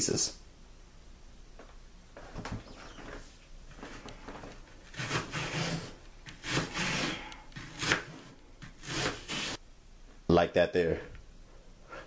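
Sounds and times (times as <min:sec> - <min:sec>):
knife slicing onion on cutting board: 0:04.9 - 0:09.6.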